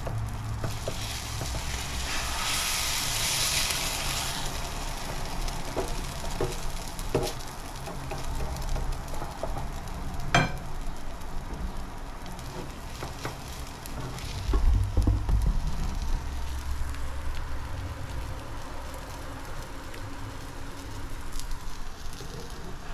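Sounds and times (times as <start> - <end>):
omelet sizzling in a pan: 0.0 - 22.9
spatula scraping a pan: 0.7 - 4.5
low rumble of pan handled: 14.2 - 16.4.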